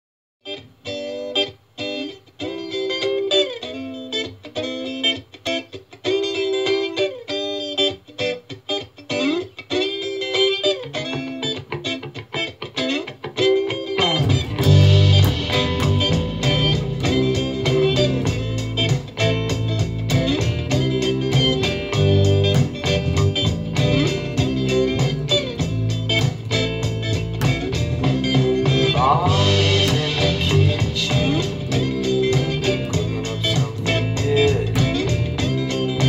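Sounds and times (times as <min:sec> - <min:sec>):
clean electric guitar melody: 0:00.4 - 0:36.0
drums: 0:00.4 - 0:36.0
deep bass notes: 0:14.2 - 0:36.0.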